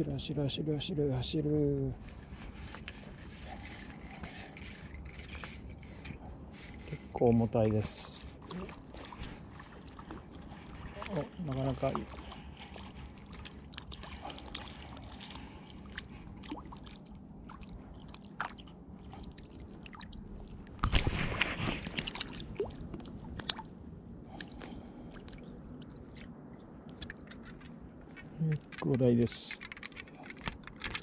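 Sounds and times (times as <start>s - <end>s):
fish splashing at water surface: 8.5s - 26.3s.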